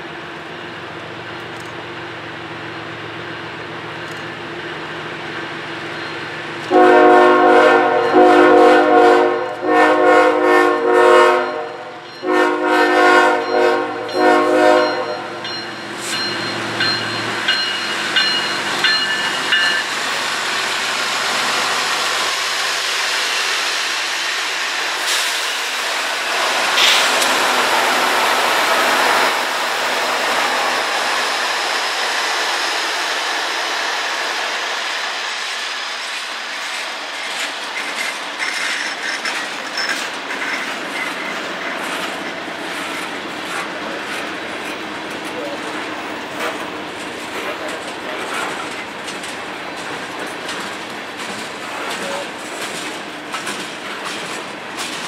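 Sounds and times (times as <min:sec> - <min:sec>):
diesel locomotives rumbling: 0:00.0 - 0:55.0
train air horn blasts: 0:06.7 - 0:15.4.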